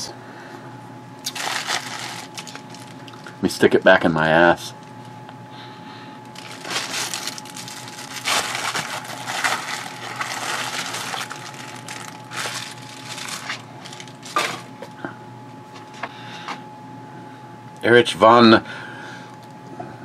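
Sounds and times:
plastic mailer crinkling: 1.2s - 3.3s, 6.3s - 14.7s.

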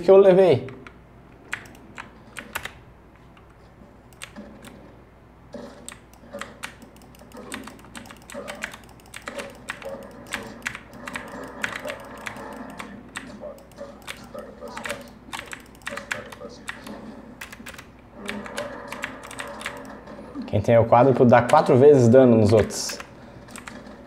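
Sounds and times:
keyboard and mouse clicking: 0.8s - 2.8s, 4.1s - 4.8s, 5.8s - 20.0s, 22.5s - 24.0s
faint game sound: 2.0s - 24.0s.

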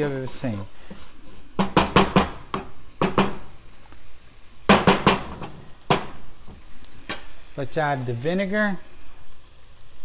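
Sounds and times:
wooden spoon knocking on pot: 1.6s - 3.5s, 4.7s - 6.2s.

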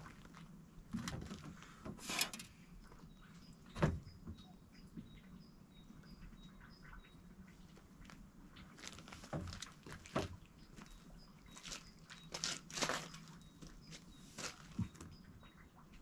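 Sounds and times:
faint high bird chirps: 2.8s - 7.7s
knocks and rustles in refrigerator: 3.8s - 4.4s.

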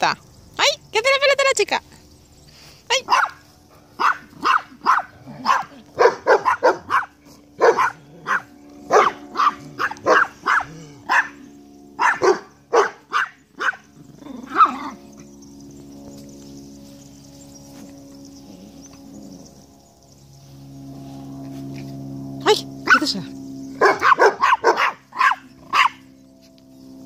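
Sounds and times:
puppy yapping: 3.1s - 3.4s, 4.0s - 15.2s, 23.8s - 26.0s.

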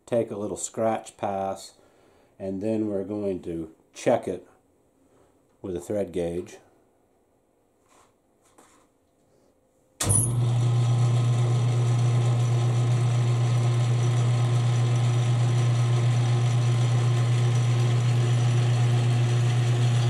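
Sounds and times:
lathe motor humming: 10.3s - 20.0s.

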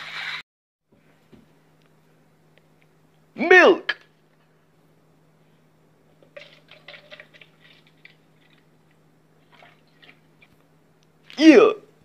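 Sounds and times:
milk pouring into a cup: 9.4s - 10.5s.

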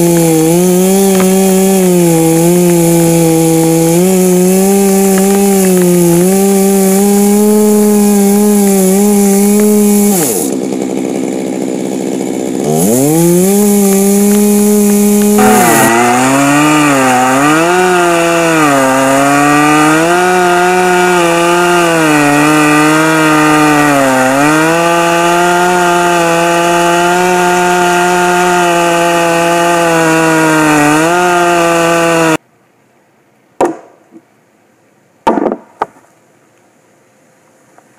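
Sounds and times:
splitting maul striking wood: 0.0s - 1.8s, 5.0s - 6.4s, 13.8s - 21.6s, 35.2s - 36.0s
chainsaw cutting wood: 0.0s - 32.4s.

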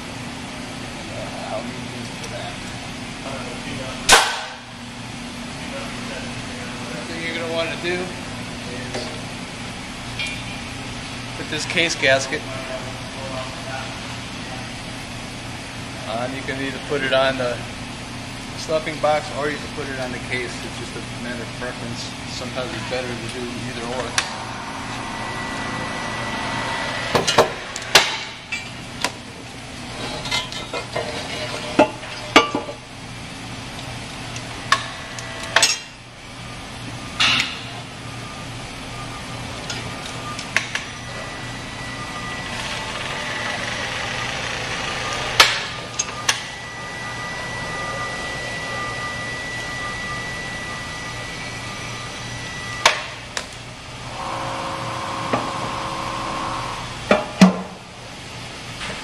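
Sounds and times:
steady background hum: 0.0s - 59.0s.

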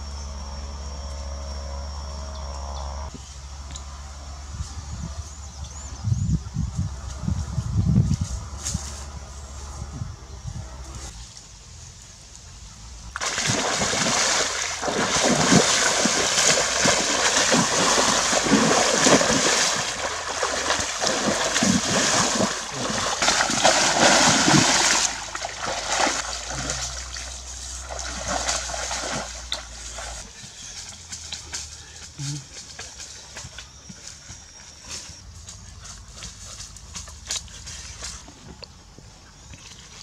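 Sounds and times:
person wading through muddy water: 13.2s - 33.6s.

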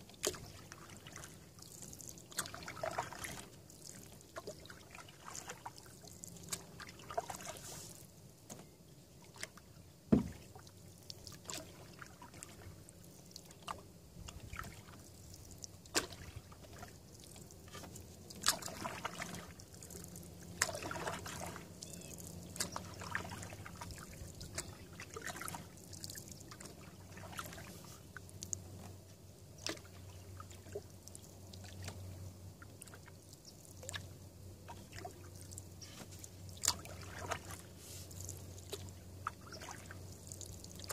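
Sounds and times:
paddle strokes in water: 0.0s - 40.9s
water dripping off paddle: 0.2s - 7.6s, 13.3s - 28.6s, 36.5s - 37.6s.

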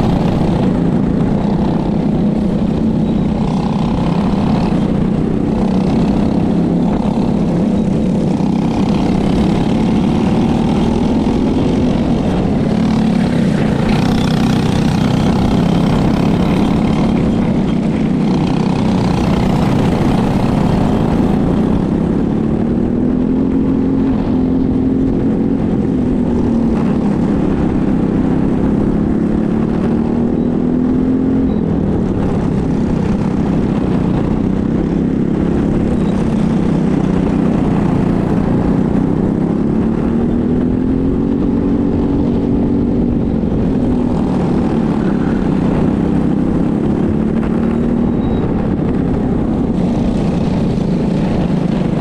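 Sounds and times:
go-kart engine revving: 0.0s - 52.0s.

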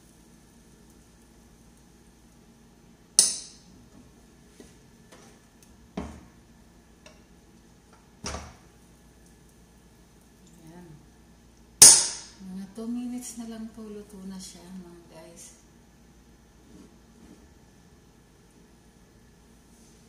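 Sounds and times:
food sizzling: 0.0s - 15.1s.

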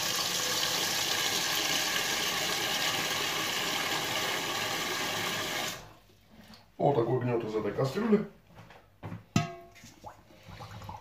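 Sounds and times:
water running from a tap: 0.0s - 5.9s.

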